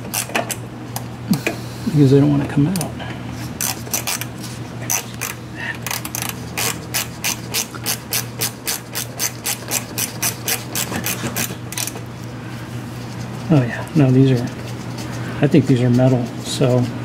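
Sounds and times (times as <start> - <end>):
hand ratchet clicking: 3.6 - 4.3, 4.9 - 12.0.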